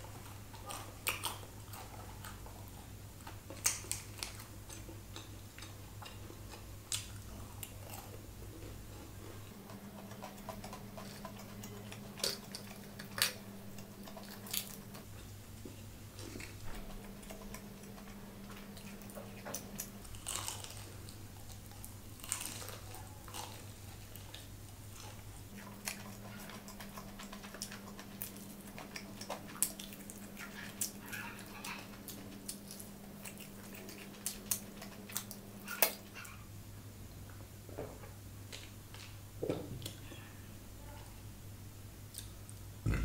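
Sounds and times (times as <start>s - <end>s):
crunching and chewing food: 0.0s - 36.5s, 37.2s - 40.4s, 42.0s - 43.0s
faint low hum: 0.0s - 43.0s.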